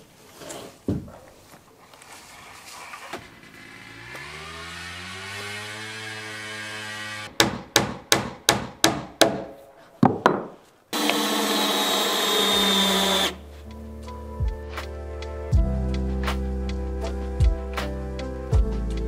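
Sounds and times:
power tool running: 3.4 - 7.3, 11.0 - 13.4
motor humming: 11.0 - 13.4.

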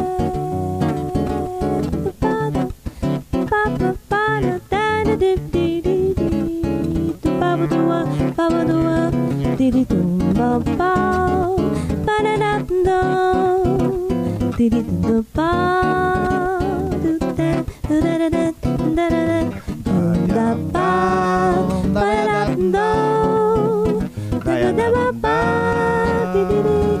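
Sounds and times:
acoustic guitar: 0.0 - 27.0
person singing long notes: 19.4 - 27.0.

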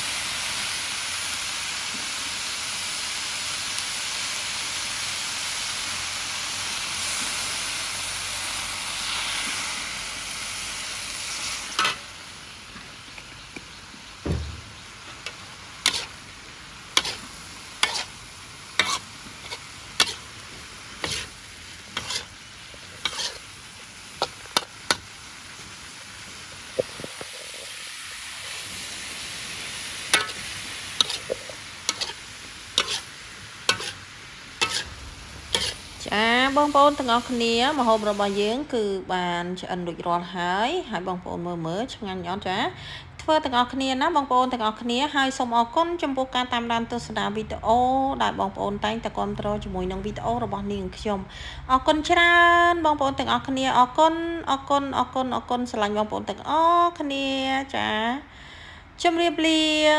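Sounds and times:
food sizzling in a wok: 0.0 - 41.1
metal spatula scraping wok: 11.3 - 12.1, 14.6 - 25.1, 29.6 - 38.2.

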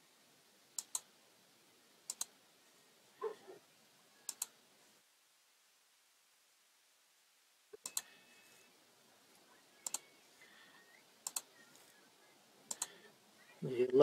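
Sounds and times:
computer mouse clicking: 0.8 - 1.1, 2.1 - 2.3, 4.3 - 4.6, 7.8 - 8.1, 9.8 - 10.0, 11.2 - 11.5, 12.7 - 13.0.

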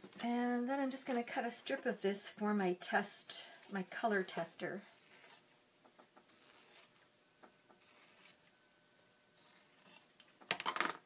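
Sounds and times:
fabric rasp: 4.8 - 5.5, 6.3 - 7.0, 7.8 - 8.4.

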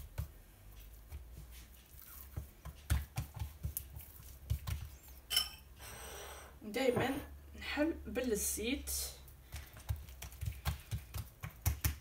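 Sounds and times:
hands tapping dough on counter: 0.0 - 1.5, 2.3 - 5.0, 9.4 - 12.0.

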